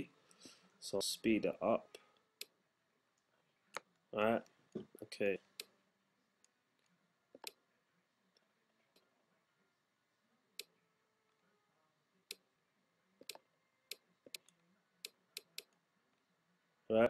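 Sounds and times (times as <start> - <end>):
computer mouse clicks: 7.4 - 7.6.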